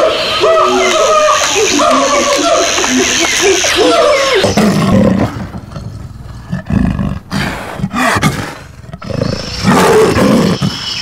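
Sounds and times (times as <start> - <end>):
leopard growling roars: 4.4 - 10.8.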